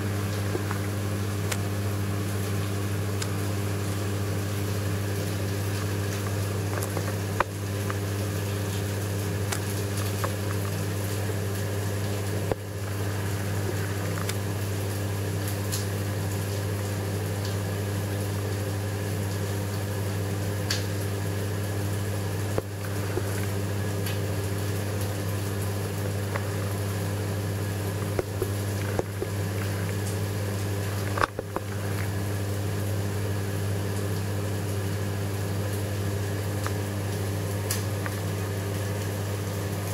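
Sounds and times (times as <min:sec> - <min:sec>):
aquarium pumps humming: 0:00.0 - 0:39.9
hiss of moving water: 0:09.9 - 0:15.2, 0:22.4 - 0:27.0.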